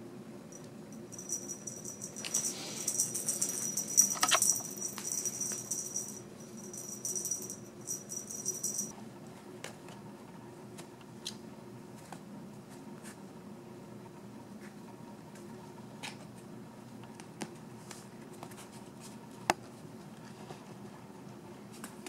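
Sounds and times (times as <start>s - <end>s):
cat toy rattling and jingling: 0.5s - 8.9s.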